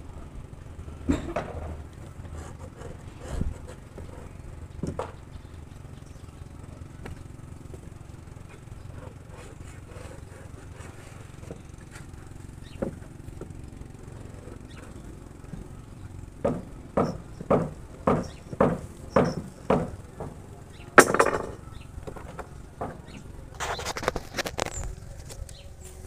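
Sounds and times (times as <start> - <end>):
low steady hum: 0.0 - 26.0
hammer blows on wood: 16.4 - 21.6
clattering knock: 21.0 - 23.1.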